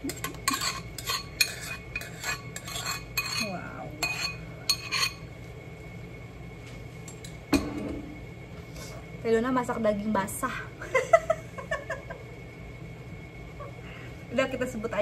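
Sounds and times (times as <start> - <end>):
metal spoon scraping ceramic bowl: 0.0 - 5.3.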